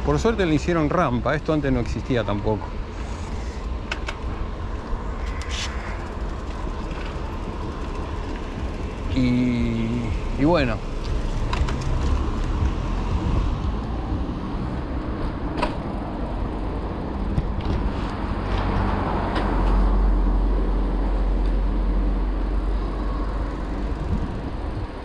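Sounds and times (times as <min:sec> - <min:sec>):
bike tyres and wind rumble: 0:00.0 - 0:25.0
bike clicks and rattles: 0:03.0 - 0:09.1, 0:10.9 - 0:12.8, 0:15.5 - 0:19.8.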